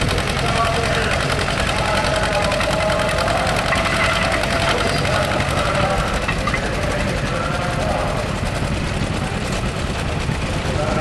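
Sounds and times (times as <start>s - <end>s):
tractor engine working under load: 0.0s - 11.0s.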